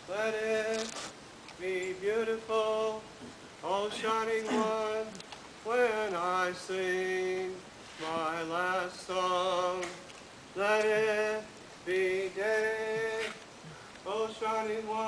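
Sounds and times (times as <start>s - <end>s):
man chanting: 3.7s - 10.0s.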